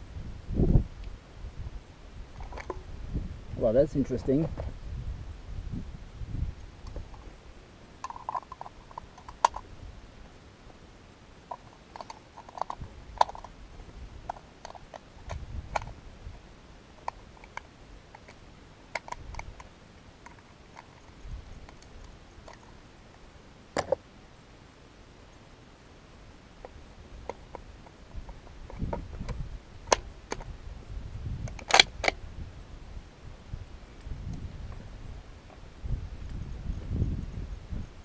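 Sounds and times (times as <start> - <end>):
cartridges clicking into magazine: 31.5 - 32.2.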